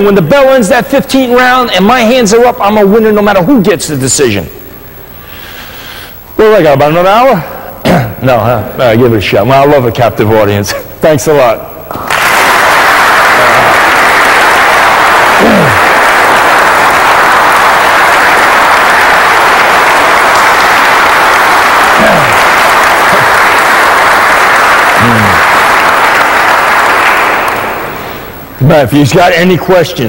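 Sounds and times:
audience applauding: 0:11.9 - 0:28.4.

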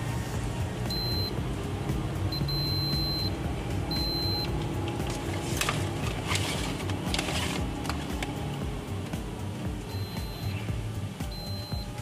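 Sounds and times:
background music: 0:00.0 - 0:12.0
high continuity beep: 0:00.9 - 0:01.4, 0:02.3 - 0:04.6, 0:09.9 - 0:12.0.

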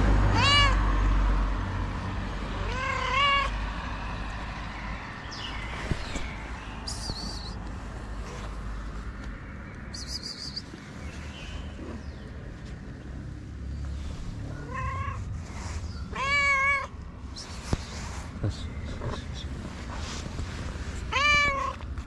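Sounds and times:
cat meowing: 0:00.4 - 0:00.8, 0:02.6 - 0:03.6, 0:14.5 - 0:15.3, 0:16.1 - 0:16.9, 0:21.1 - 0:21.8.

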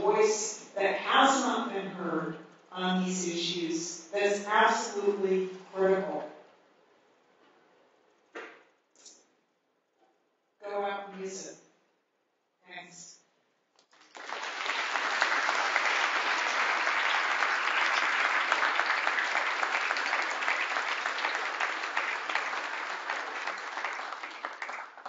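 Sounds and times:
audience applauding: 0:13.9 - 0:25.0.

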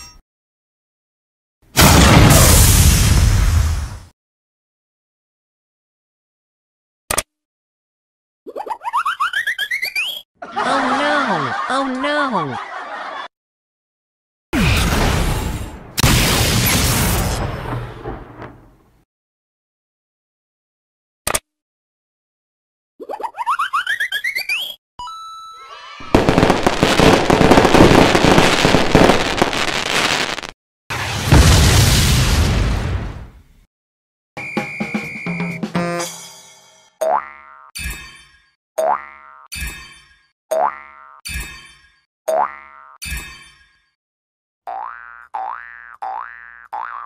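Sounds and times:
squeaky rising cartoon chirps: 0:08.5 - 0:10.2, 0:23.1 - 0:24.8, 0:25.5 - 0:26.8
fireworks crackling and popping: 0:26.0 - 0:32.6.

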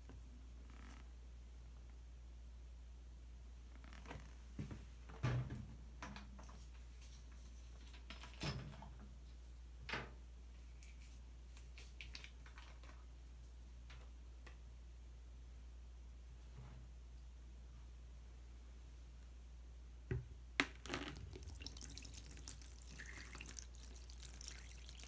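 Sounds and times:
plastic bottles knocking and crinkling: 0:20.6 - 0:21.8.

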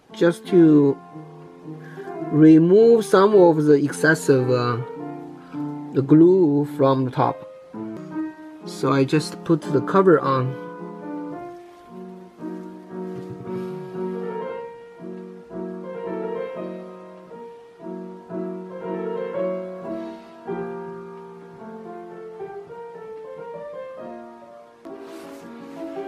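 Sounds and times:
piano melody: 0:00.0 - 0:26.0.

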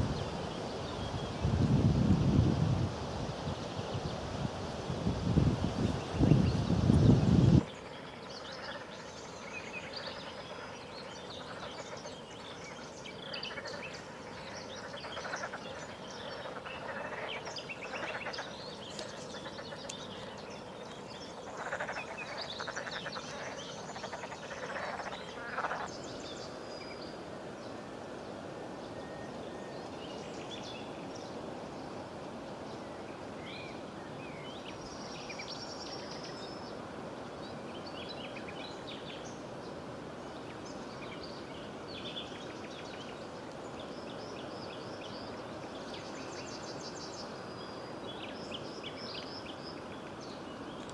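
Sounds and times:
frogs croaking: 0:05.6 - 0:27.0.

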